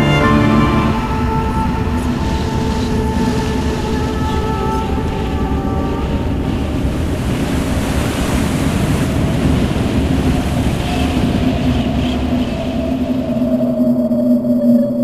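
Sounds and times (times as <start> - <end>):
low drone note: 0.0 - 6.8
sea surf rushing: 0.0 - 14.5.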